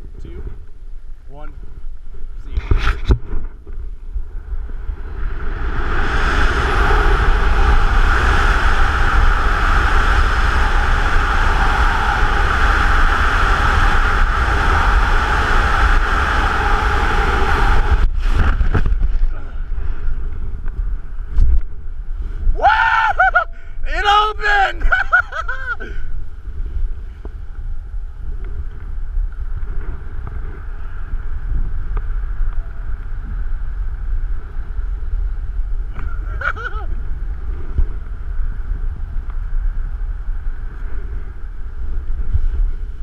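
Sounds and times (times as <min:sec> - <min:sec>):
wind blowing over microphone: 0:00.0 - 0:43.0
parachute flapping: 0:05.0 - 0:20.2.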